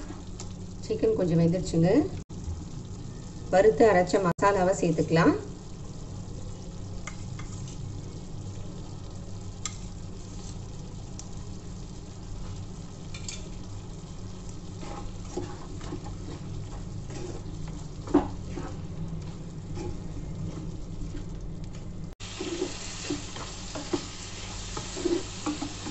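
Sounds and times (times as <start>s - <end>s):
curry sizzling in a frying pan: 0.0s - 25.9s
spatula scraping and knocking pan: 14.7s - 21.2s, 22.3s - 25.9s.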